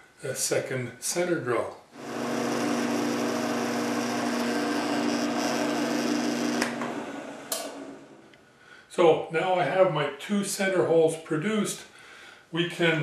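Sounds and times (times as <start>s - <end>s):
drill spindle motor running: 2.0s - 8.3s.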